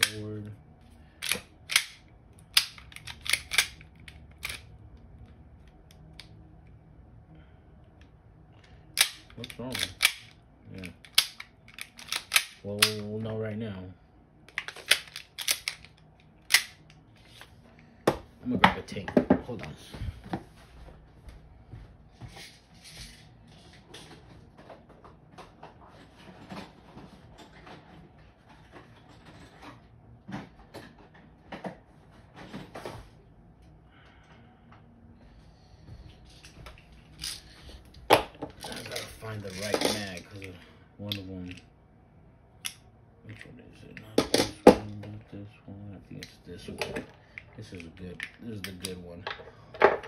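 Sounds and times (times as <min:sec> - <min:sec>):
pistol slide clacking: 0:01.2 - 0:04.7, 0:09.0 - 0:10.4, 0:11.0 - 0:13.0, 0:14.5 - 0:15.9, 0:16.5 - 0:17.0.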